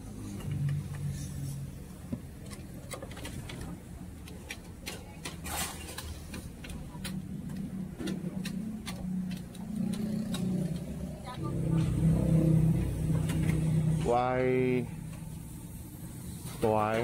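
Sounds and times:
low hum: 7.2 - 16.6.

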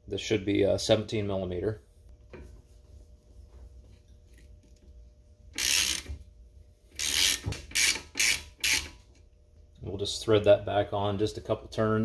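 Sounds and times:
ratchet clicking: 5.6 - 6.2, 7.0 - 9.0.

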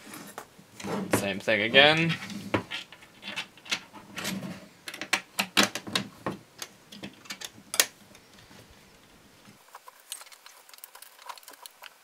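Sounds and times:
hands tapping plastic and metal parts: 4.8 - 8.2.

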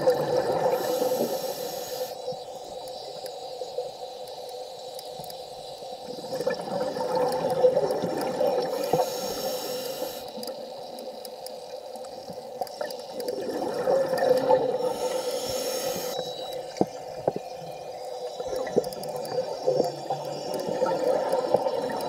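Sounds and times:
underwater bubbles gurgling: 0.0 - 4.3, 5.2 - 22.0
short hiss: 0.7 - 2.4, 8.7 - 10.5, 14.8 - 16.9.

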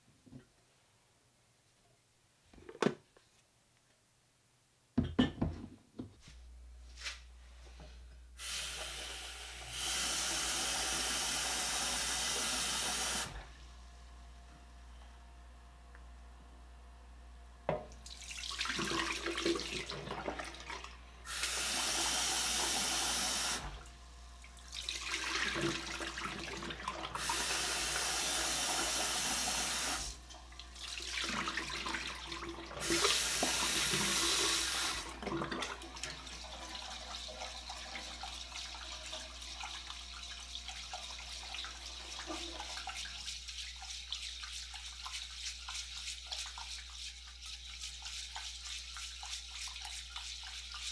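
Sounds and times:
hands stirring wet rice: 37.1 - 50.9.

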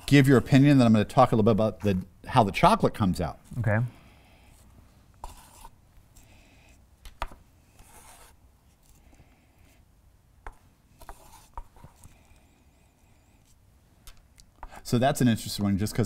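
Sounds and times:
soft sips and breaths: 11.9 - 13.6.

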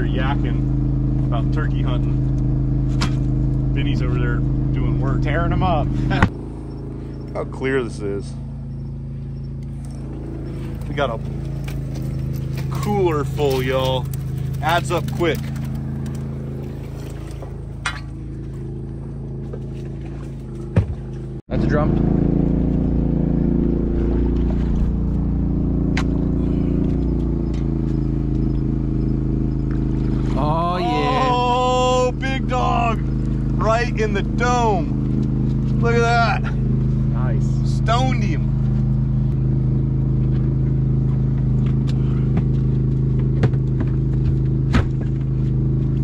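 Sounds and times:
boat motor droning: 0.0 - 46.0
sharp knocks on boat: 20.0 - 21.1, 43.1 - 45.3.

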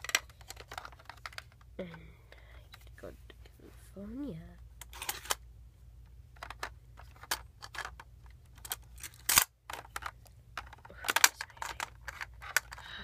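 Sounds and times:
plastic toy pieces clicking and clattering: 0.0 - 1.7, 4.8 - 5.4, 6.3 - 13.0.

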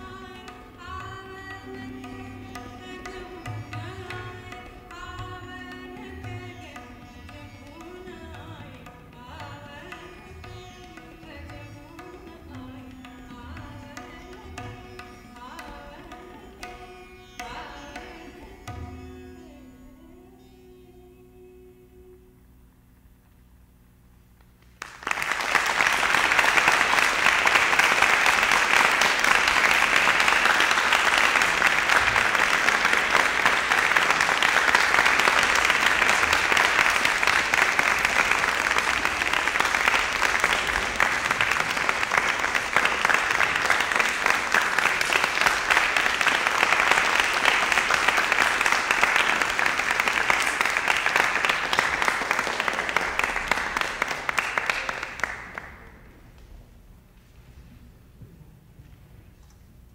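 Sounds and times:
music: 0.0 - 22.7
audience applauding: 24.6 - 56.0.

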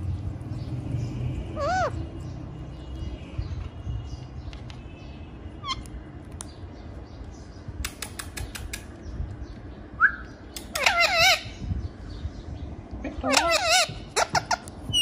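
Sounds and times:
parakeet calling: 0.5 - 3.2, 5.5 - 5.9, 10.2 - 12.3, 13.1 - 15.0.

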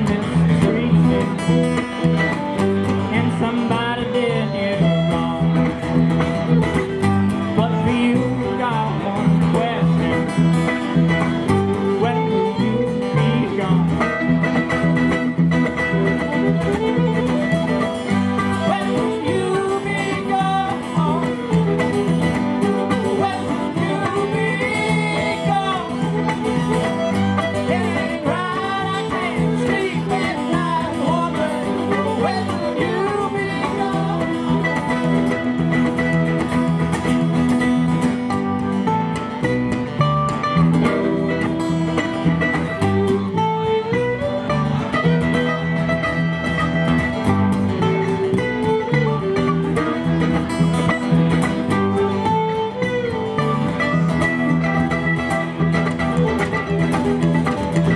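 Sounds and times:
man singing into a microphone: 0.0 - 2.2, 3.0 - 6.1, 7.4 - 10.8, 11.7 - 14.3, 18.6 - 21.9, 22.8 - 26.3, 27.6 - 35.0
acoustic guitar strumming: 0.0 - 57.9
mandolin: 0.0 - 57.9
upright bass: 0.0 - 57.9.

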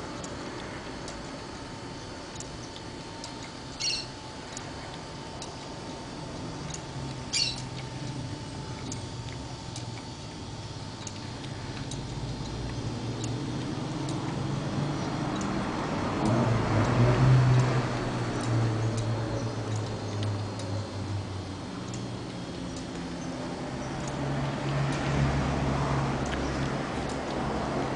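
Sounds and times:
low hum: 0.0 - 27.9
mechanical ticks: 0.0 - 27.9
short high squeaks: 3.8 - 4.2, 7.3 - 7.6.

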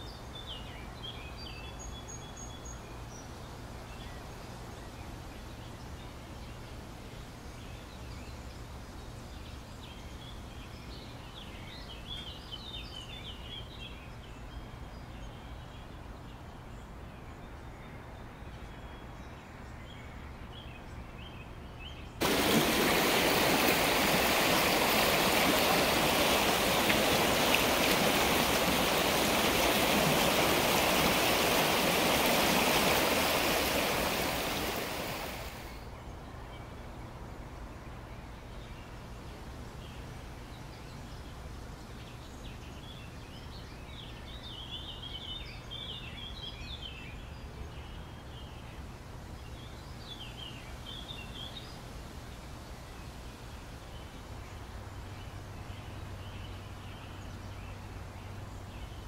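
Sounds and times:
waterfall rushing: 22.2 - 35.8
birds chirping: 22.2 - 35.9.

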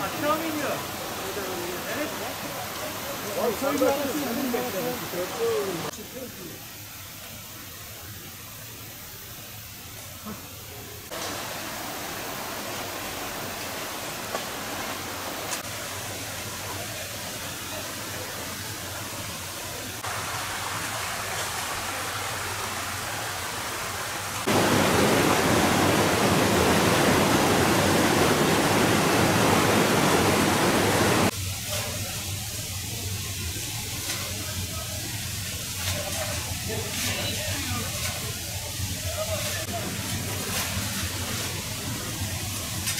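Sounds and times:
creek water rushing: 0.0 - 31.4.

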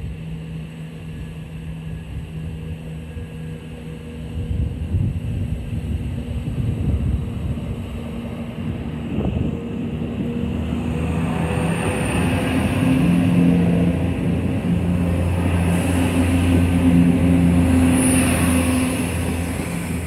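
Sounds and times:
diesel train engines droning: 0.0 - 20.0.

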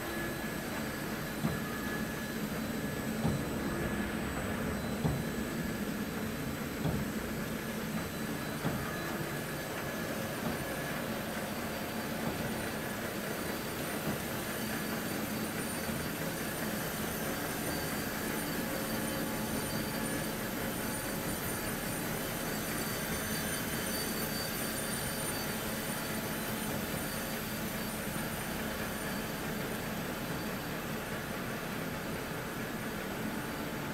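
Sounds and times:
faint machine whines: 0.0 - 33.9
industrial machinery hum: 0.0 - 33.9.

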